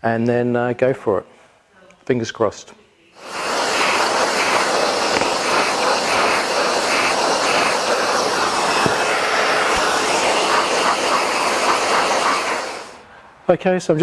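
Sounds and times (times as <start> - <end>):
shop vacuum sucking dust: 3.2 - 13.1.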